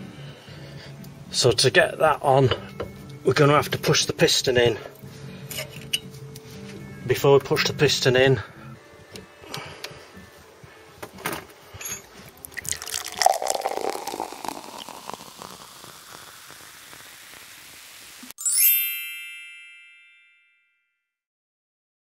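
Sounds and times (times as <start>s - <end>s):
rushing hiss: 13.9s - 18.4s
bell-like chime: 18.4s - 21.2s.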